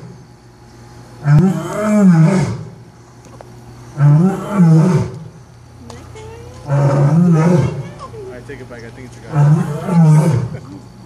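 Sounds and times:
lion roaring: 1.2s - 2.7s, 4.0s - 5.3s, 6.6s - 7.8s, 9.3s - 10.7s.

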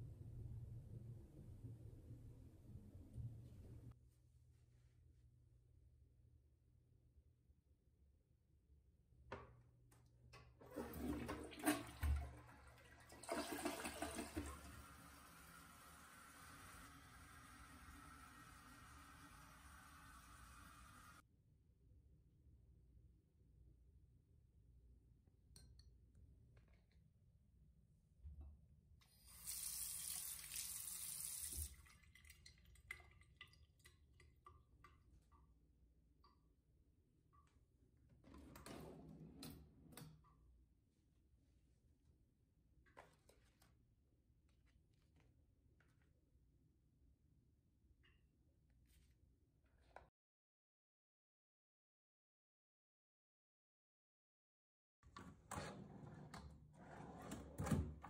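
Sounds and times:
toilet water rushing: 10.6s - 21.2s.

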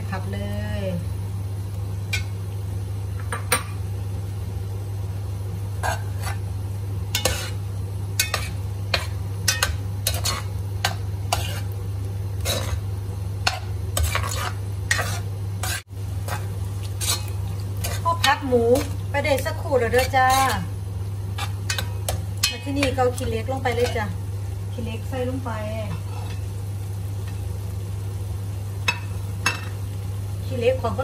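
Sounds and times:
curry sizzling: 0.0s - 31.0s
steady low hum: 0.0s - 31.0s
metal ladle scraping pan: 8.2s - 11.8s, 12.4s - 12.8s, 13.4s - 19.0s, 19.8s - 20.7s.

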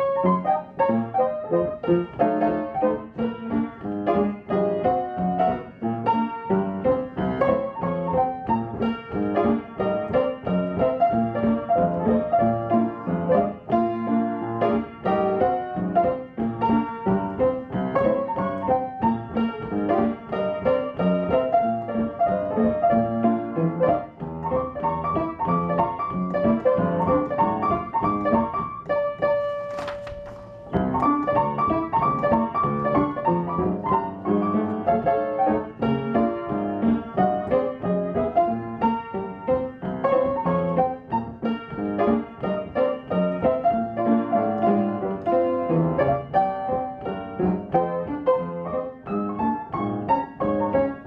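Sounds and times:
stride piano jazz tune: 0.0s - 51.0s
page of music turning: 29.4s - 31.2s.

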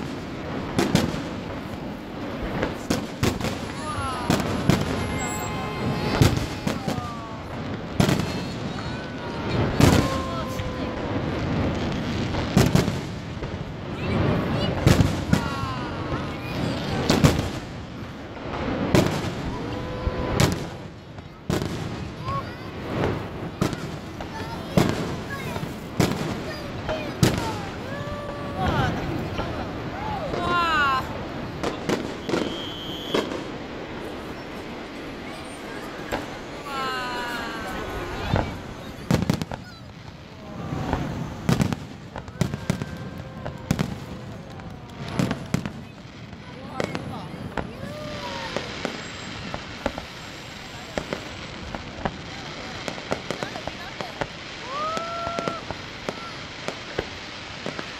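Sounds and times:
fireworks bursting with bangs: 0.0s - 57.9s
low rush of noise: 33.4s - 52.0s.

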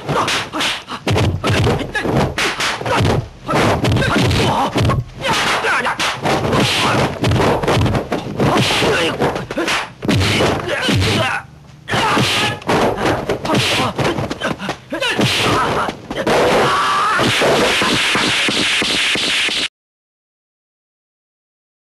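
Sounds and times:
fighters shouting and grunting: 0.0s - 7.7s, 8.3s - 17.4s
punch and kick impacts: 0.0s - 11.3s, 11.9s - 19.7s.

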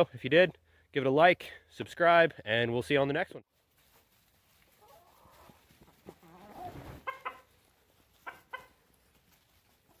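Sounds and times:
chickens clucking: 3.9s - 10.0s.

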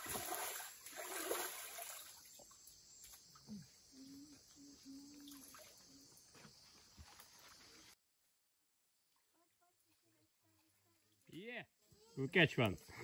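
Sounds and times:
water splashing and sloshing: 0.0s - 3.5s
faint water trickling: 0.0s - 8.0s.

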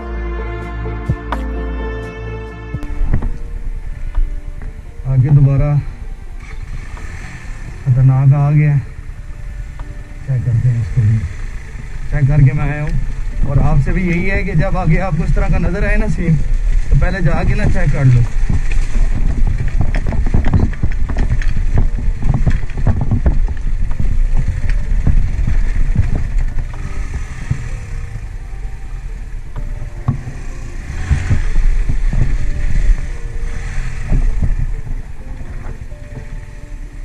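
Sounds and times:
motorcycle engine under load: 2.8s - 37.0s
stones knocking and rattling: 16.5s - 27.8s.

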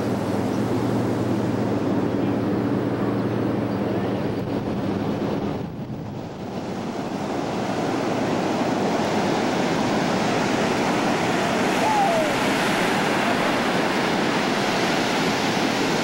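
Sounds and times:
ocean waves breaking on beach: 0.0s - 16.0s.

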